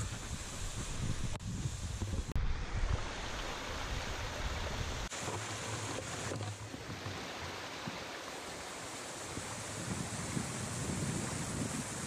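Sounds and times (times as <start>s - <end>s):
wind rumble on microphone: 0.0s - 5.1s, 9.2s - 12.0s
waterfall splashing into pool: 0.0s - 12.0s.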